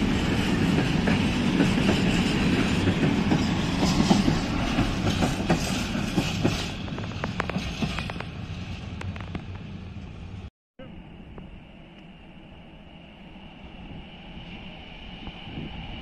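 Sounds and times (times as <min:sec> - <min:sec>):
train wheels clattering over rail joints: 0:00.3 - 0:09.7.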